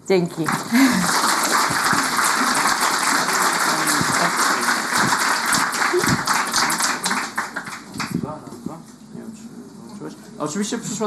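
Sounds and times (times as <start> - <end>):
audience applauding: 0.4 - 8.3.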